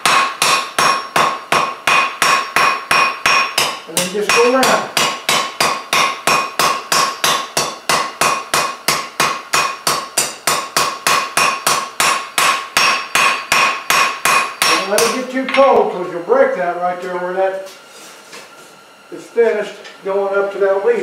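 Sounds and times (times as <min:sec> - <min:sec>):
anvil ringing: 0:00.0 - 0:15.9
hammer striking hot steel: 0:00.0 - 0:15.9.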